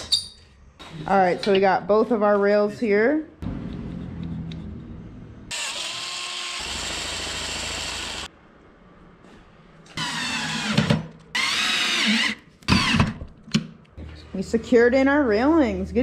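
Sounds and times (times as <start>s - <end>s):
cordless drill whining: 5.5s - 8.3s, 10.0s - 13.0s.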